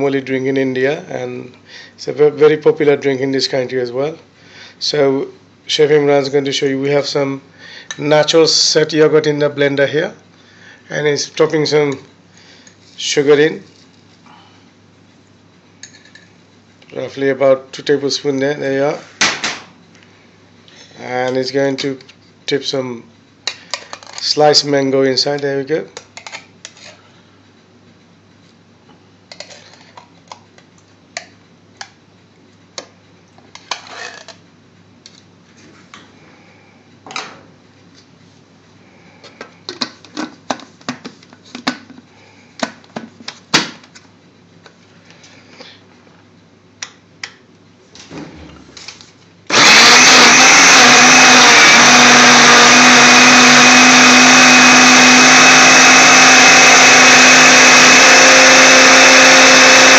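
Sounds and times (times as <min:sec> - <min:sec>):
blender motor running: 0:49.5 - 0:59.9.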